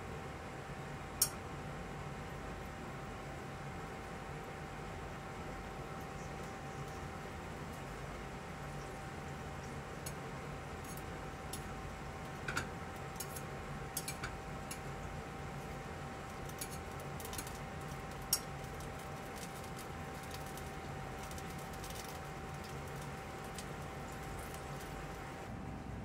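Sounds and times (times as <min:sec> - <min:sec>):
faint constant hum: 0:00.0 - 0:26.0
milk simmering hiss: 0:00.8 - 0:25.5
metal tweezers ticking and popping: 0:10.8 - 0:14.9, 0:16.3 - 0:25.1.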